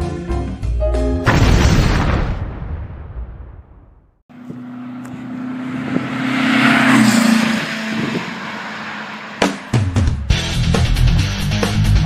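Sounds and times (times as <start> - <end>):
music: 0.0 - 1.3, 9.7 - 12.0
vehicle engine passing by: 4.3 - 10.6.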